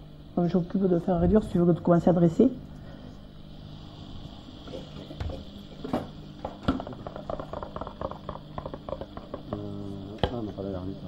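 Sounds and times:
steady low hum: 0.0s - 11.0s
utensil knocks: 4.8s - 10.5s
meat juices bubbling and crackling: 6.5s - 9.7s.

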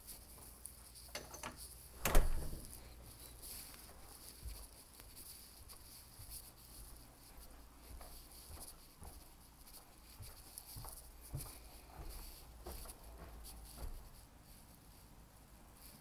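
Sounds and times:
faint steady hiss: 0.0s - 16.0s
soft footsteps on carpet: 2.1s - 14.7s.

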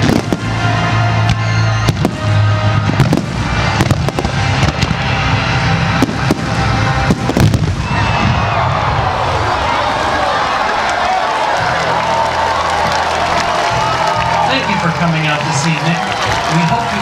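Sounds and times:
music with steady bass: 0.0s - 8.3s
fireworks bangs and crackling: 0.0s - 9.2s.

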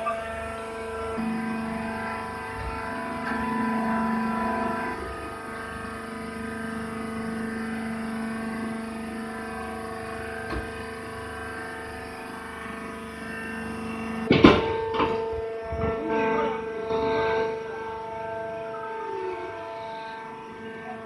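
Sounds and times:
hydraulic motor and pump humming: 0.0s - 21.0s
sudden loud clatter: 14.3s - 16.0s.

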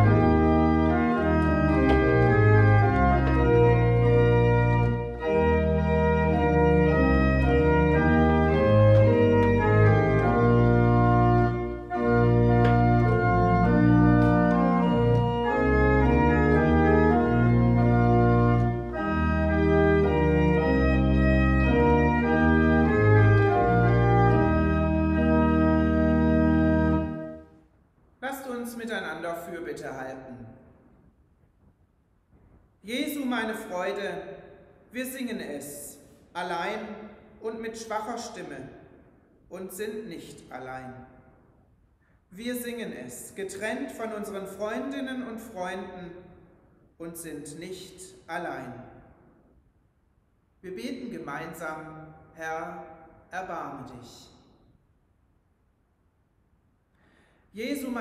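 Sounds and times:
pipe organ playing chords: 0.0s - 27.6s.

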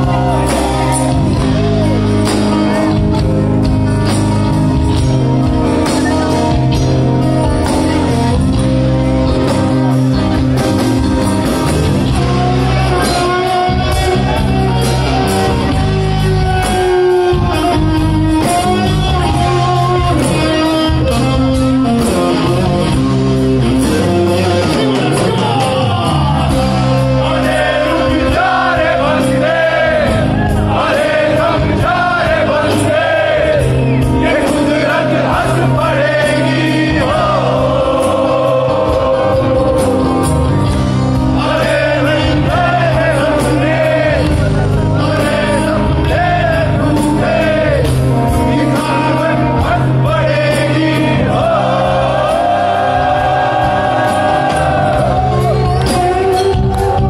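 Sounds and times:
live rock band playing: 0.0s - 57.0s
man singing: 12.0s - 21.5s, 23.6s - 33.0s, 41.2s - 52.0s.

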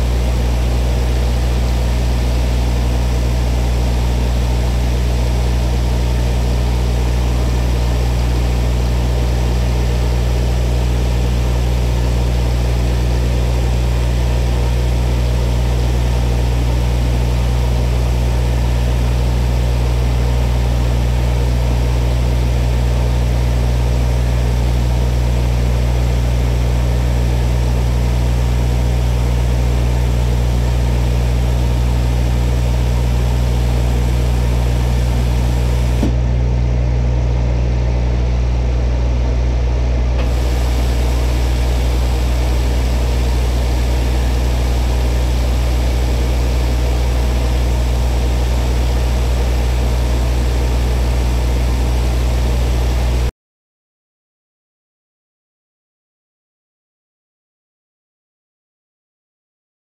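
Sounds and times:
milling machine humming: 0.0s - 53.3s
cutter hiss: 40.2s - 53.1s.

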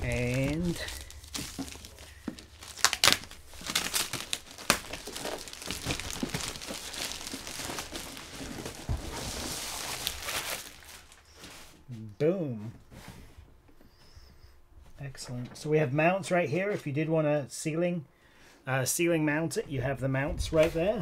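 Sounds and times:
plastic wrap crinkling: 0.0s - 11.8s.

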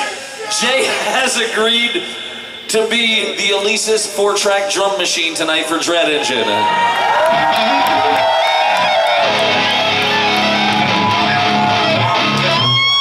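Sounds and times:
electric guitar ringing notes: 7.3s - 13.0s.

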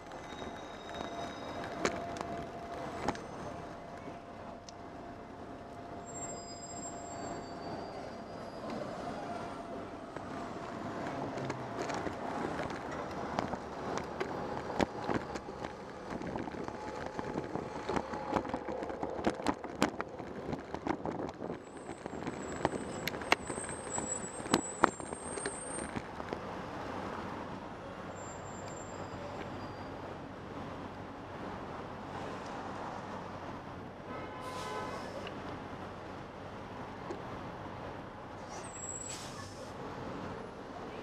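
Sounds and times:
city traffic: 0.0s - 41.0s
wind: 0.0s - 41.0s
thin high squeal: 6.0s - 8.9s.

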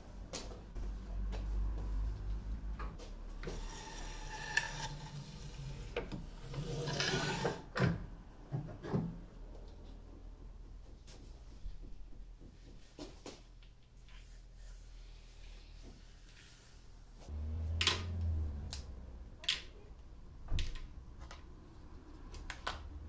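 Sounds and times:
board scraping: 3.4s - 7.7s.

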